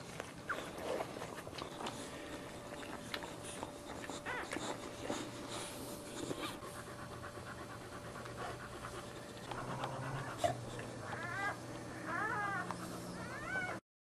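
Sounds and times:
dog panting: 0.0s - 13.8s.

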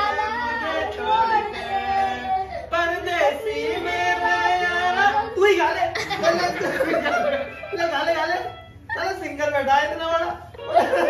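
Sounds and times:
man singing unaccompanied: 0.0s - 7.0s.

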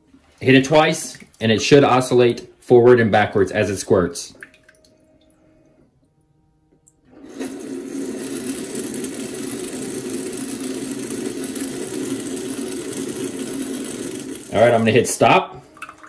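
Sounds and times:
toilet seat whirring hum: 0.0s - 16.0s
water spraying into toilet bowl: 7.1s - 16.0s.

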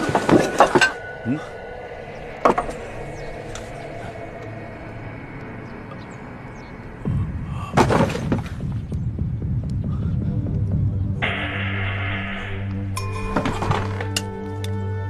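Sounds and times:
quiet background tone: 0.0s - 7.1s
deep throbbing hum: 0.0s - 15.0s.

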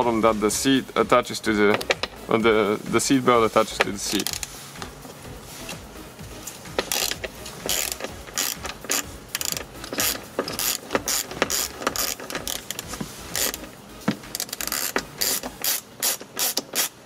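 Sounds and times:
hand ratchet clicking: 1.6s - 2.3s, 3.8s - 4.5s, 6.4s - 17.0s.

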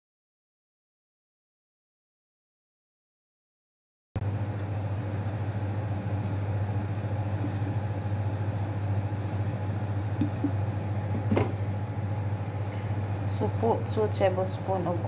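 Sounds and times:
kitchen equipment humming and rushing: 4.2s - 15.0s.

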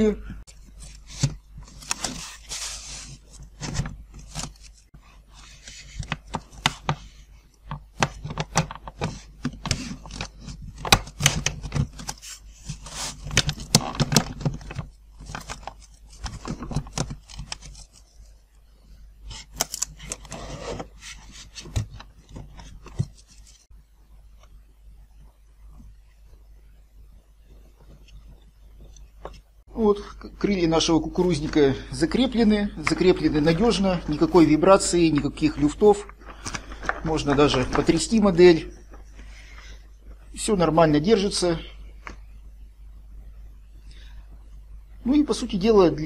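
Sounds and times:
foam rubbing and scraping: 2.0s - 3.6s, 12.2s - 13.3s
clicks and knocks of foam parts: 5.5s - 18.1s.

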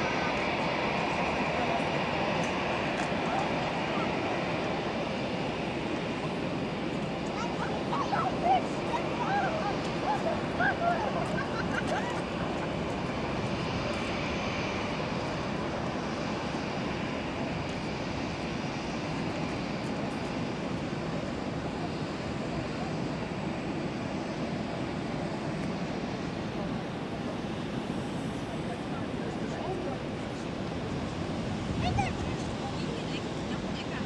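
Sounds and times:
jet engines rushing: 0.0s - 34.0s.

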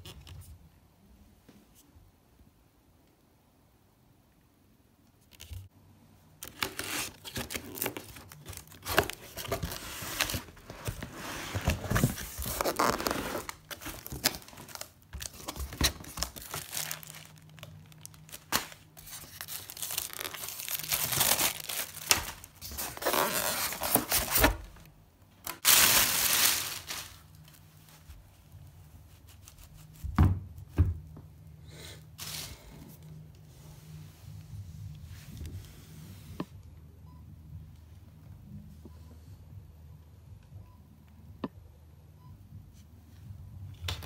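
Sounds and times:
wrapping tearing and crinkling: 6.4s - 24.6s, 25.5s - 28.0s.

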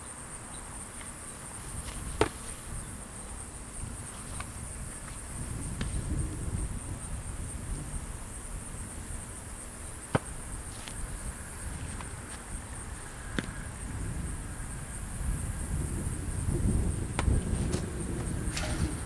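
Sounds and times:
insects trilling: 0.0s - 19.0s
football slapping into hands: 1.8s - 2.6s, 10.0s - 11.0s, 17.1s - 17.9s.

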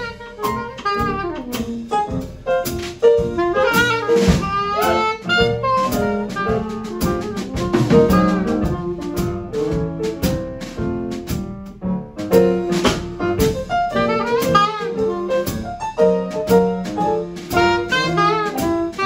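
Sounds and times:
saxophone melody: 0.0s - 1.9s, 3.2s - 9.4s, 13.9s - 16.2s, 17.5s - 19.0s
drum kit with cymbals: 0.0s - 19.0s
piano chords: 0.0s - 19.0s.

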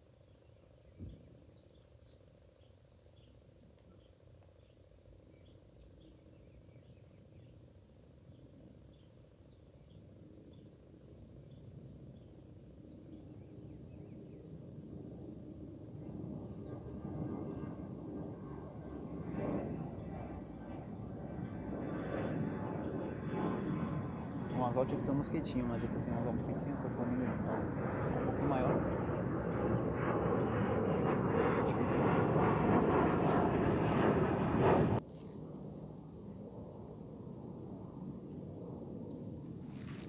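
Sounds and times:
insect trilling: 0.0s - 40.0s
low rumble: 25.8s - 35.0s.

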